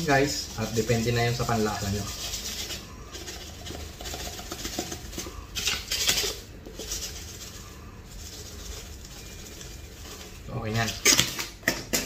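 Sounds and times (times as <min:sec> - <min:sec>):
sugar granules rustling and pattering: 0:00.0 - 0:11.5.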